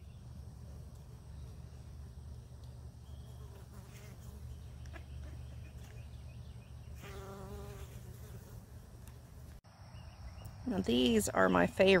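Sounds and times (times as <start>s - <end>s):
flying insect buzzing: 3.2s - 4.6s, 7.0s - 9.6s.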